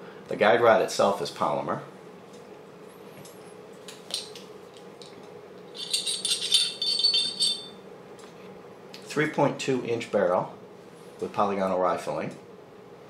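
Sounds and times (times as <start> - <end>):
metallic rattling and clinking: 5.7 - 7.8.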